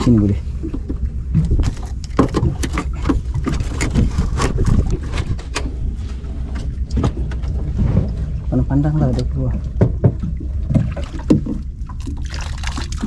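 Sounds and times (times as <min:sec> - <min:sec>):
steady low rumble: 0:00.0 - 0:13.0
splashing in water: 0:10.5 - 0:13.0.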